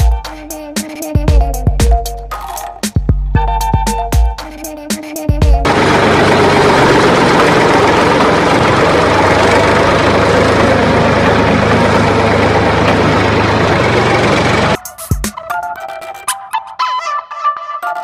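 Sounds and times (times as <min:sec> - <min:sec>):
heavy engine rumbling: 0:05.6 - 0:14.8.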